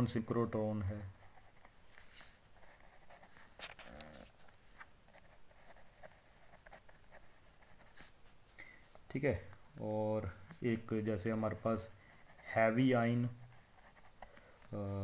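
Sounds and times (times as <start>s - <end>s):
pen scratching on paper: 0.8s - 9.1s, 10.4s - 15.0s.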